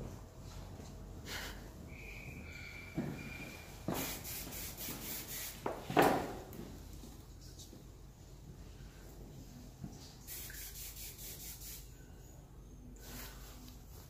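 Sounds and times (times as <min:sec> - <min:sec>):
aerosol spray hissing: 0:03.9 - 0:05.7, 0:10.2 - 0:11.9.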